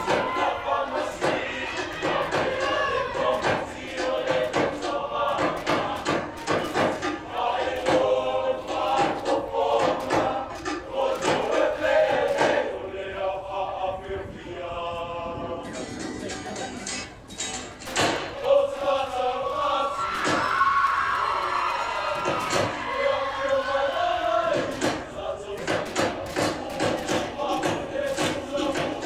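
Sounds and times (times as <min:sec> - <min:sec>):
rhythmic claps and slaps: 0:00.0 - 0:12.8, 0:17.8 - 0:22.9, 0:23.7 - 0:29.0
men singing and chanting: 0:00.0 - 0:16.4, 0:17.9 - 0:21.0, 0:21.9 - 0:29.0.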